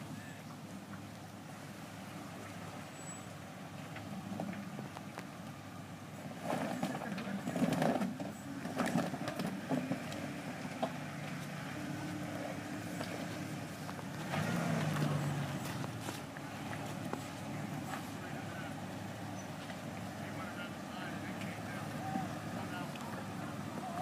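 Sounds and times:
engine running at low revs: 0.0s - 24.0s
knocks and clatter: 6.4s - 10.1s.

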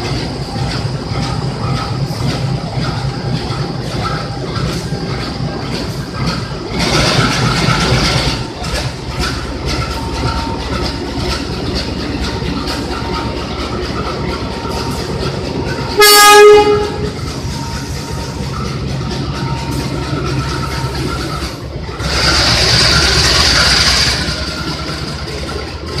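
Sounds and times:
diesel locomotive rumbling: 0.0s - 26.0s
train horn blast: 16.0s - 17.2s.

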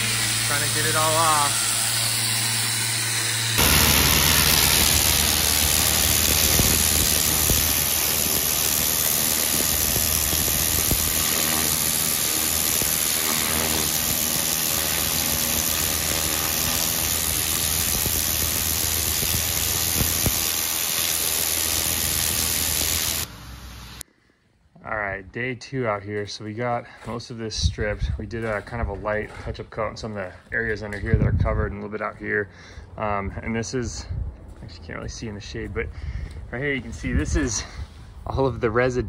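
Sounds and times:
water jet hissing on stone: 0.0s - 2.4s, 3.6s - 24.0s
pressure washer machine humming: 0.0s - 24.0s.

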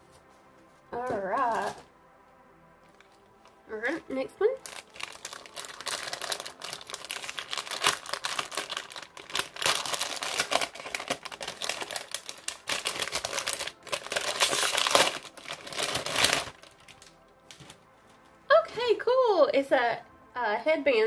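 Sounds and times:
gift wrapping paper crinkling: 2.9s - 18.3s.

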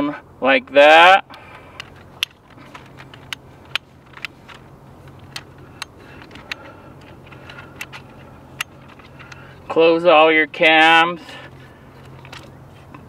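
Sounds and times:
tripod legs clicking and clattering: 1.0s - 9.8s, 10.7s - 13.0s.

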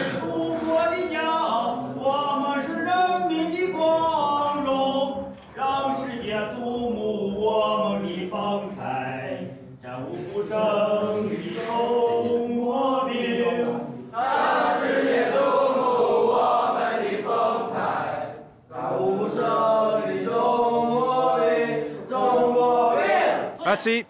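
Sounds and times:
group of young voices singing: 8.5s - 24.0s.

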